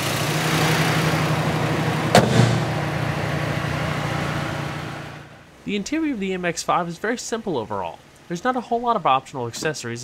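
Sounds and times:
car engine idling: 0.0s - 5.6s
sharp bang: 2.1s - 3.0s.

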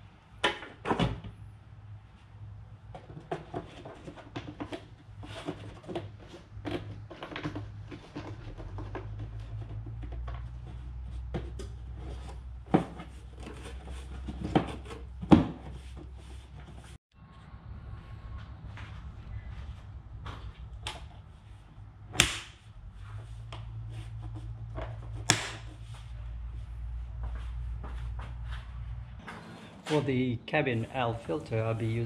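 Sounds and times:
plastic rubbing and clicking: 2.9s - 16.9s
low hum: 17.1s - 29.8s.

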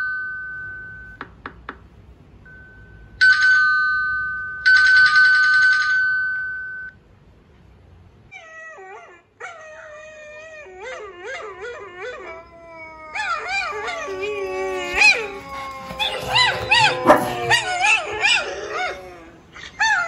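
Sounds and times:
dogs howling and whining: 8.4s - 20.0s.

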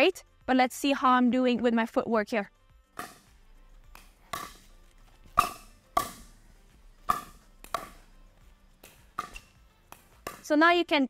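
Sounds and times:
ball bouncing on court: 3.0s - 6.4s, 7.0s - 8.2s, 8.8s - 10.6s
paddles striking plastic ball: 3.0s - 10.6s.

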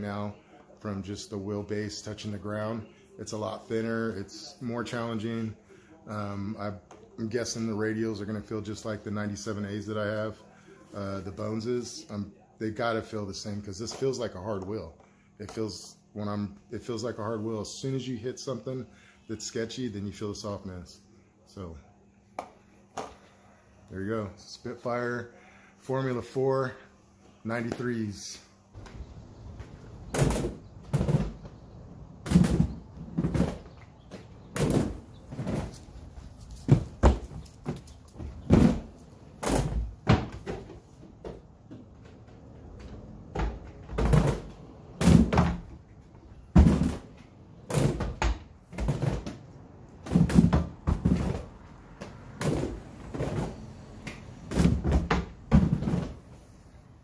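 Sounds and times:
roller skates thudding on concrete: 28.8s - 45.7s, 46.4s - 56.4s.

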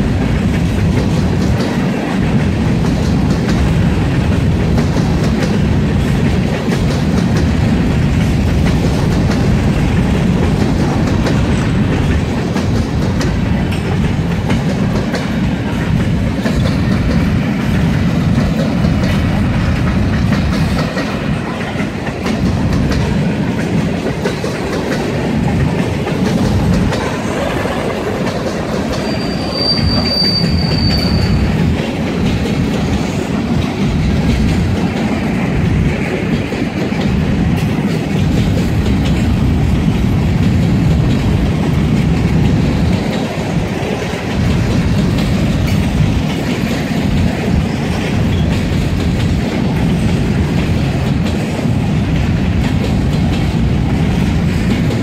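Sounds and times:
heavy train rumble: 0.0s - 55.0s
train wheels clacking over rail joints: 0.0s - 55.0s
high train squeal: 26.9s - 32.0s, 47.9s - 48.8s.

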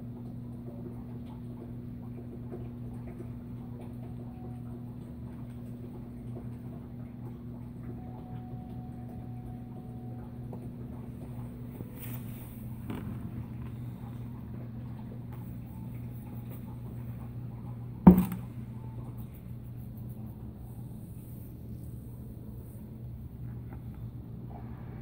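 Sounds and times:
drain pump humming: 0.0s - 25.0s
hose rustling: 11.7s - 13.8s.

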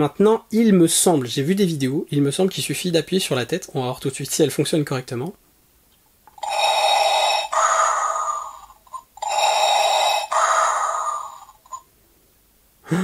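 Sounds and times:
mechanical respirator breathing: 6.4s - 11.8s.

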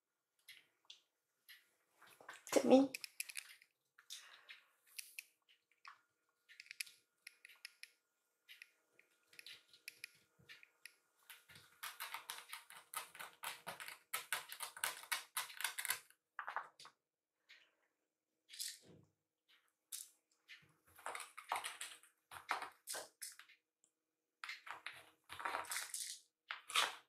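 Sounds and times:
kittens' claws clicking on a mat: 9.1s - 16.7s, 20.9s - 23.5s.

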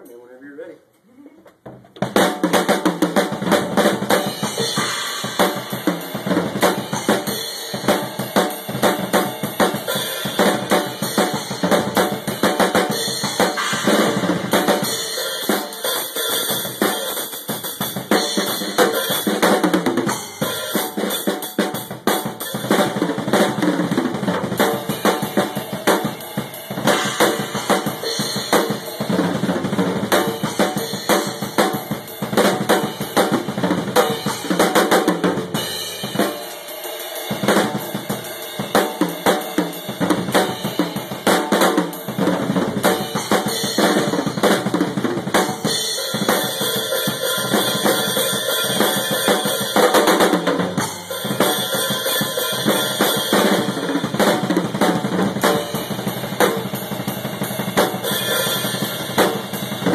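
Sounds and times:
acoustic drum kit playing: 1.5s - 59.9s.

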